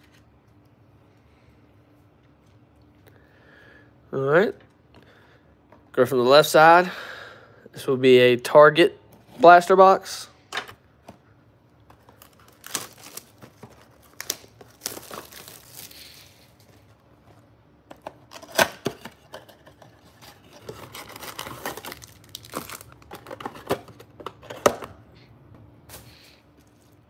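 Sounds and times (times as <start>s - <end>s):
cardboard and wrapper snaps: 11.8s - 16.0s, 17.9s - 19.2s, 20.8s - 24.0s
packaging tearing and crinkling: 12.0s - 16.8s, 17.9s - 24.0s.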